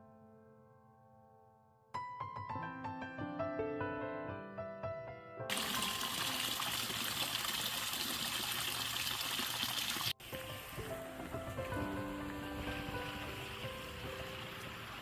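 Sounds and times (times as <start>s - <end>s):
soft piano music: 0.0s - 6.7s, 10.1s - 15.0s
water rushing down stone channel: 5.5s - 15.0s
water trickling: 5.5s - 15.0s.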